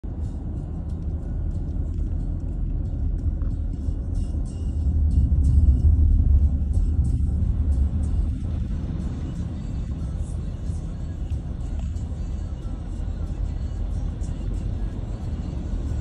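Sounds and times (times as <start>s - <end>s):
vehicle rumbling through water: 4.8s - 16.0s.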